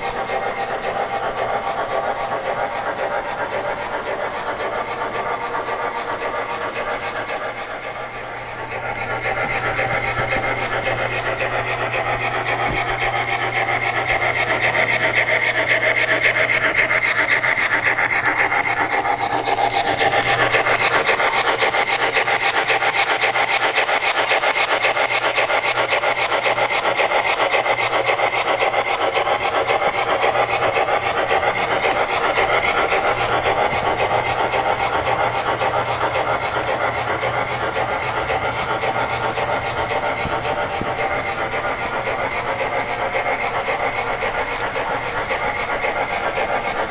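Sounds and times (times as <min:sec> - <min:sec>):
model freight cars rolling: 0:00.0 - 0:46.9
model steam locomotive chuffing: 0:00.0 - 0:46.9.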